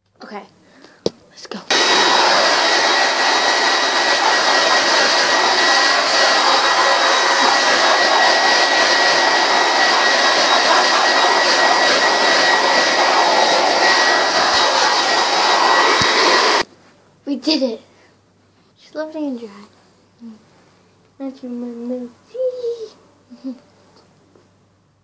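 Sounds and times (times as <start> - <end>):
hair dryer running: 1.7 - 16.7.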